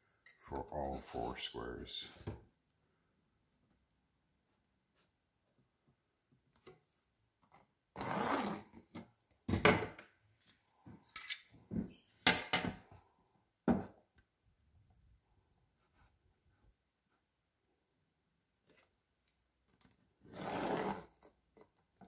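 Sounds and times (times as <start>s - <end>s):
knocks and bumps on tabletop: 13.6s - 14.0s.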